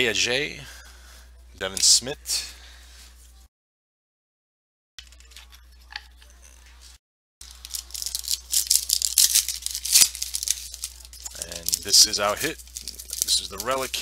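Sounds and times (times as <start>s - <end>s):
foil wrapper crinkling and tearing: 7.4s - 14.0s.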